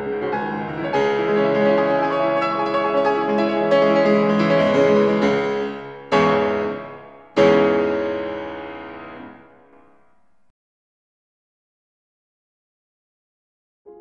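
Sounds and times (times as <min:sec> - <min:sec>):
piano chords ringing: 0:00.0 - 0:10.4.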